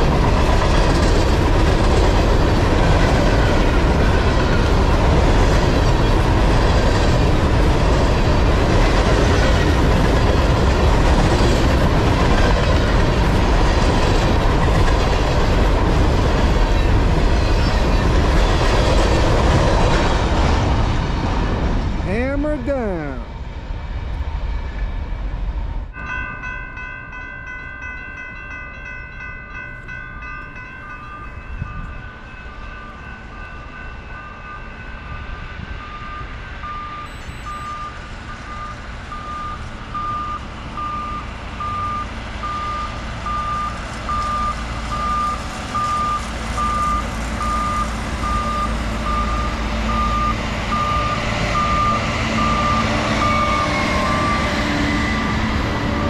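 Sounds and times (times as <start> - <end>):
track machine engine and rail rumble: 0.0 - 56.0.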